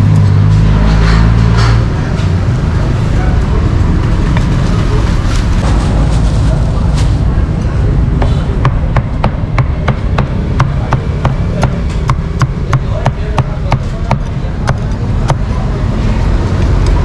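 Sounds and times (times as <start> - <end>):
low rumble: 0.6 - 9.9.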